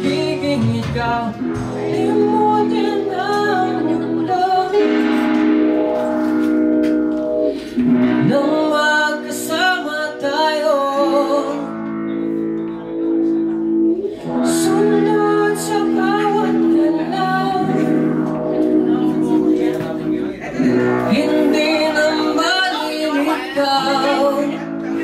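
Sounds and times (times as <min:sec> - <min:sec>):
person singing: 0:00.0 - 0:06.8, 0:07.4 - 0:25.0
rock band playing: 0:00.0 - 0:25.0.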